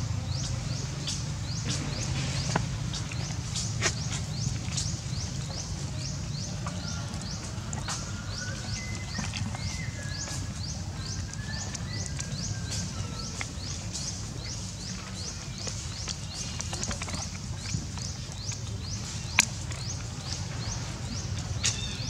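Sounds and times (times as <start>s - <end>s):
low steady rumble: 0.0s - 22.0s.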